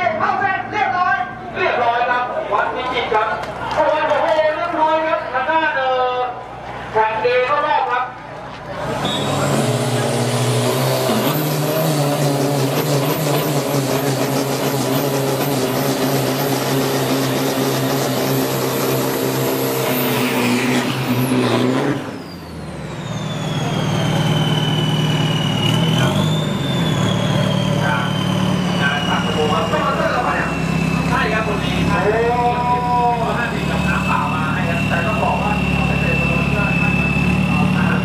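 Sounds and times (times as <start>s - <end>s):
engine revving high: 8.7s - 38.0s.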